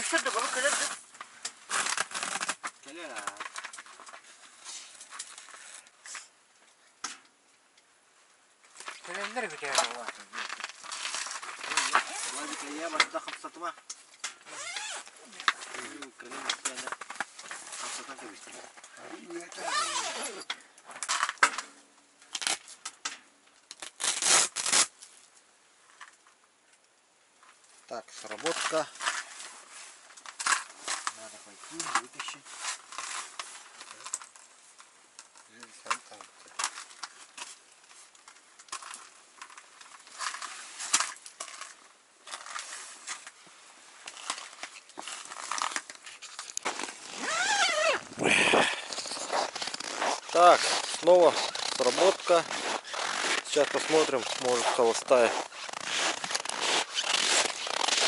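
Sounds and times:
fabric rustling and rubbing: 0:38.8 - 0:58.0
short scrapes: 0:45.2 - 0:58.0.

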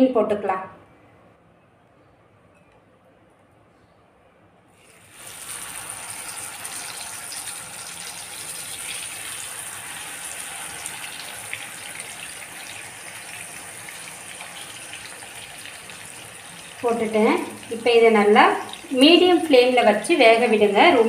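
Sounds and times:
fish sizzling in hot oil: 0:04.8 - 0:19.4.

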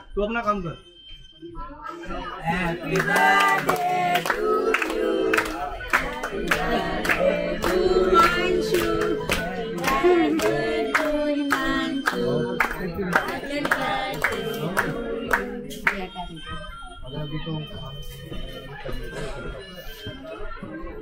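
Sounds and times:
group singing: 0:02.2 - 0:16.3
people clapping in time: 0:02.4 - 0:16.4.

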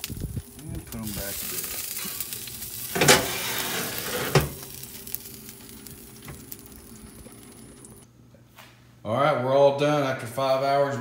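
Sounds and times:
ribs sizzling on a smoker: 0:00.0 - 0:08.0.

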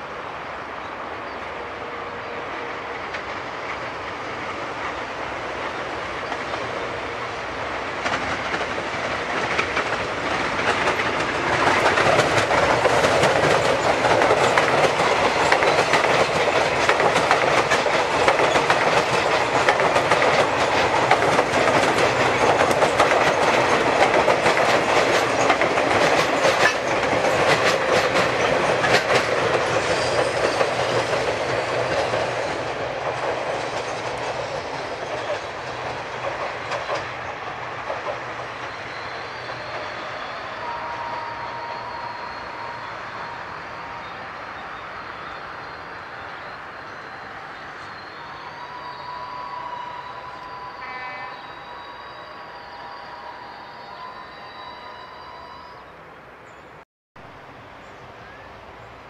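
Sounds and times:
electric train running past: 0:00.0 - 0:59.0
wheels clicking over rail joints: 0:07.8 - 0:39.8.

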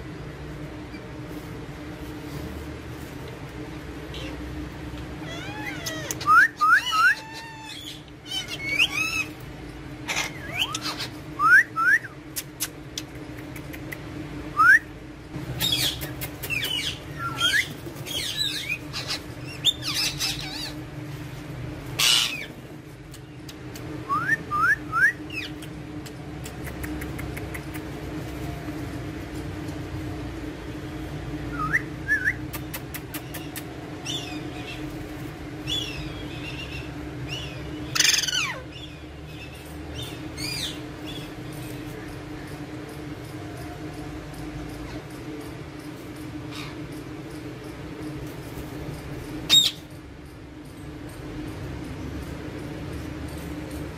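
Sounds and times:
steady low hum: 0:00.0 - 0:53.9
parakeets calling: 0:03.9 - 0:11.5, 0:15.4 - 0:24.0, 0:25.2 - 0:25.8, 0:31.8 - 0:42.2, 0:46.2 - 0:50.0.

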